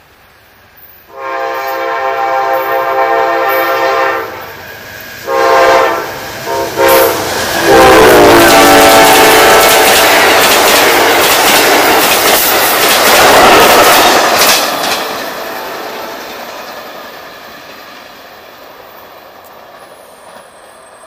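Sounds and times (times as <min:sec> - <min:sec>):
train rumbling and clattering past: 0:00.0 - 0:21.0
locomotive chime air horn: 0:01.1 - 0:04.6, 0:05.2 - 0:10.0.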